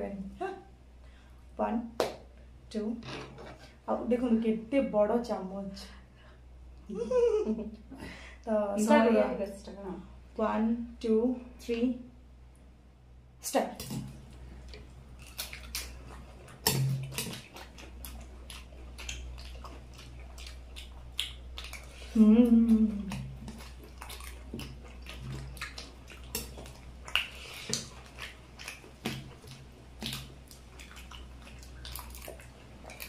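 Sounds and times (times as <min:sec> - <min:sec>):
steady low hum: 0:00.0 - 0:33.0
chewing: 0:14.0 - 0:33.0
person humming: 0:22.1 - 0:23.2.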